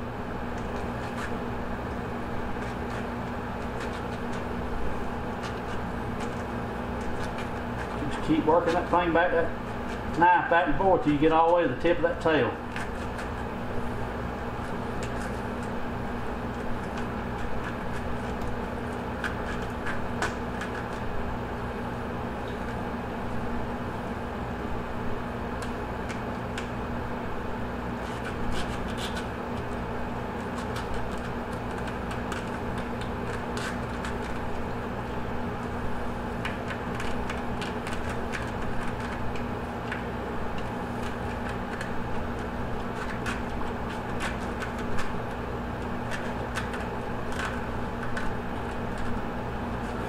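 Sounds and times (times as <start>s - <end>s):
steady background hum: 0.0s - 50.0s
faint clicks and scratches: 0.5s - 10.2s, 11.0s - 13.5s, 14.6s - 15.8s, 16.5s - 21.1s, 28.0s - 34.6s, 36.4s - 50.0s
knife separating fish skin: 0.5s - 10.2s, 12.7s - 13.6s, 16.5s - 21.2s, 27.9s - 34.7s, 36.4s - 50.0s.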